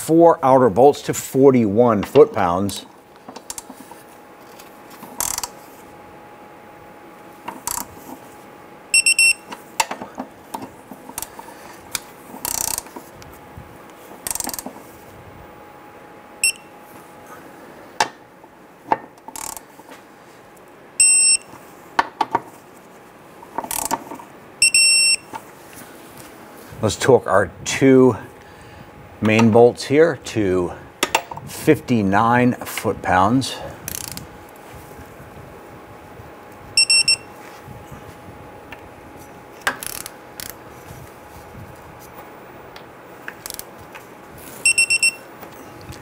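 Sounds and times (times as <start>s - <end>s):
torque wrench ratchet clicks: 5.2s - 5.5s, 7.6s - 7.9s, 12.4s - 12.9s, 14.2s - 14.6s, 19.3s - 19.6s, 23.7s - 23.9s, 33.9s - 34.2s
high electronic beeps: 9.0s - 9.4s, 21.0s - 21.4s, 36.8s - 37.3s, 44.6s - 45.2s.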